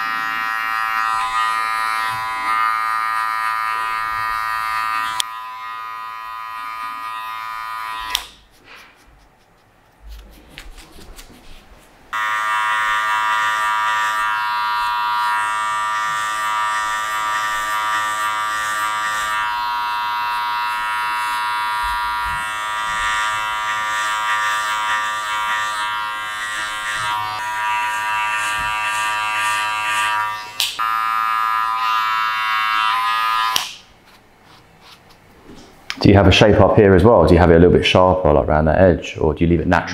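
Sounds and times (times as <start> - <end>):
electric hair clippers buzzing: 0.0 - 8.4, 12.1 - 33.9.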